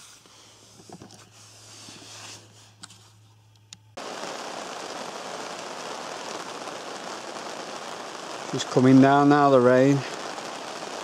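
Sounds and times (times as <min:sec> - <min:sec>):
rain drumming on a canvas tent: 0:04.0 - 0:11.0.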